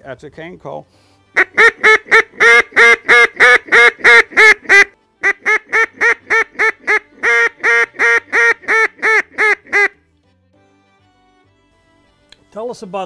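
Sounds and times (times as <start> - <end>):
duck call quacks: 1.4 - 10.0.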